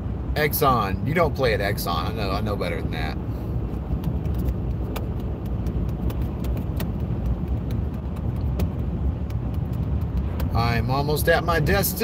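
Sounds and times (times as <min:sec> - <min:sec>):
car road and engine rumble: 0:00.0 - 0:12.0
light clicks and rattles: 0:03.8 - 0:10.6.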